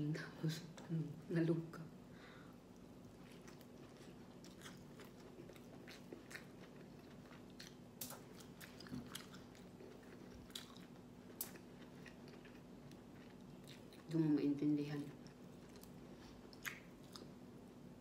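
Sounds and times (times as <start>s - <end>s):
person chewing and lip-smacking: 2.8s - 14.2s, 15.2s - 17.4s.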